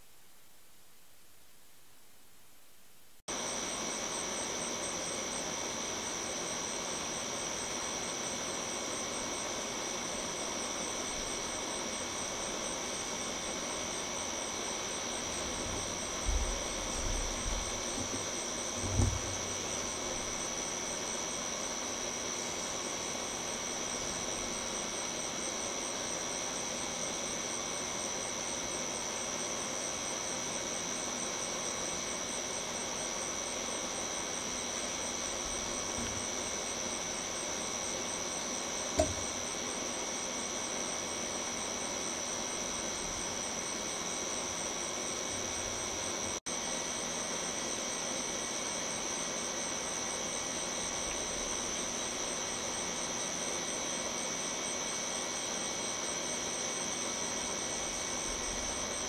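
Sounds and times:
short knock: 17.9s - 19.5s, 39.0s - 39.4s.

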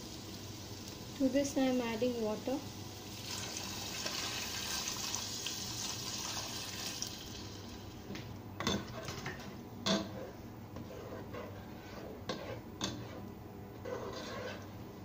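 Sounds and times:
water pouring into pot: 3.1s - 7.8s
ladle stirring: 8.8s - 14.8s.

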